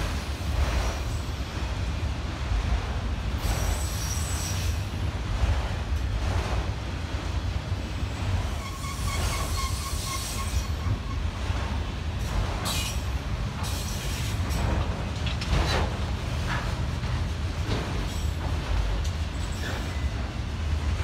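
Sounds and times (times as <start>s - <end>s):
train wheels rumbling on rail: 0.0s - 21.0s
wheel squeal: 8.5s - 11.3s.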